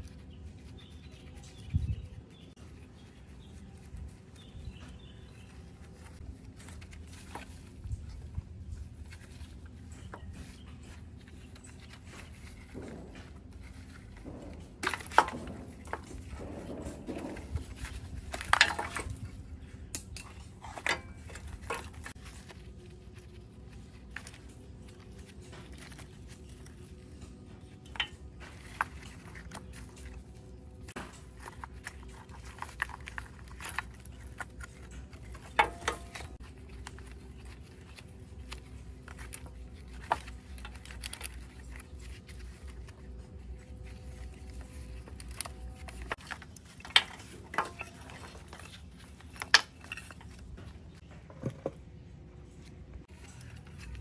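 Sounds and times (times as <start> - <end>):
low steady hum: 0.0 - 54.0
metal tools clinking: 11.5 - 22.2, 31.0 - 37.6, 44.0 - 50.9.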